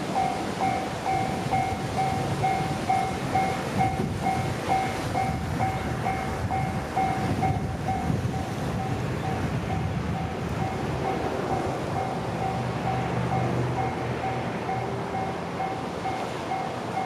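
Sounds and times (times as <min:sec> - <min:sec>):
level crossing alarm clanging: 0:00.1 - 0:08.0.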